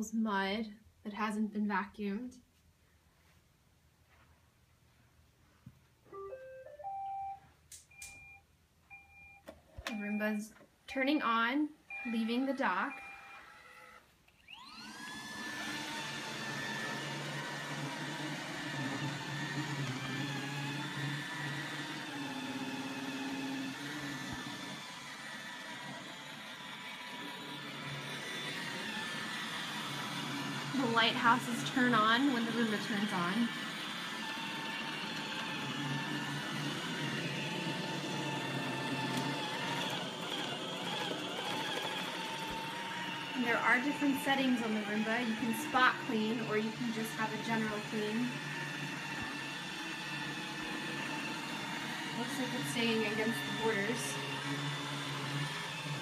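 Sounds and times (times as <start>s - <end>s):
robot vacuum whirring: 11.9s - 56.0s.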